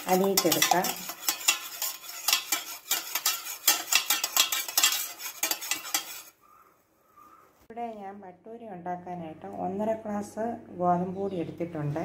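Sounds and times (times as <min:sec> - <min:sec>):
metal spoon stirring in tumbler: 0:00.0 - 0:06.4.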